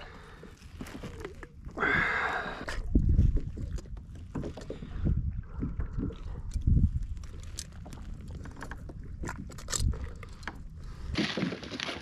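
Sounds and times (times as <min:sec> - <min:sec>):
wind rumble on microphone: 0:00.4 - 0:11.2
unhooking tool clicks and scrapes: 0:06.4 - 0:10.6.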